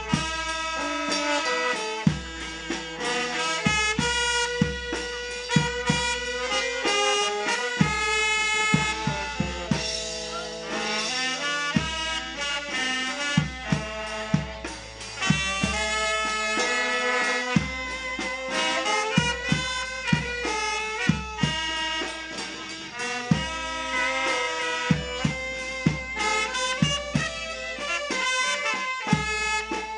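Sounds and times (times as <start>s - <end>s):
brass band playing a melody: 0.0s - 29.9s
drum beats: 0.0s - 29.9s.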